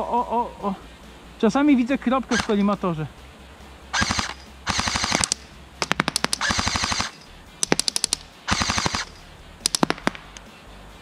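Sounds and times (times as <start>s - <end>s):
electric rifle full-auto bursts: 2.3s - 2.6s, 3.9s - 10.2s.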